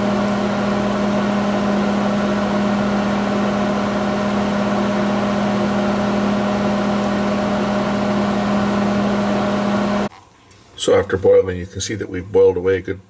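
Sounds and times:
microwave oven humming: 0:00.0 - 0:10.1.

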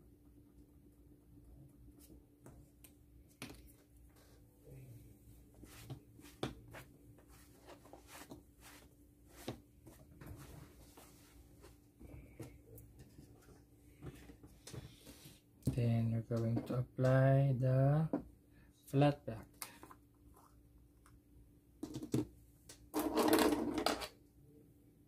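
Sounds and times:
low steady hum: 0:00.0 - 0:21.8
cloth wiping: 0:05.3 - 0:11.9.

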